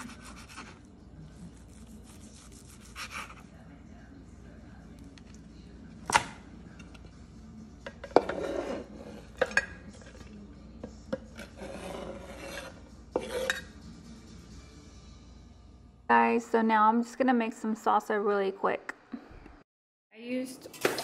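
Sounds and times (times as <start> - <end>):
rasping scrapes on board: 11.4 - 13.6.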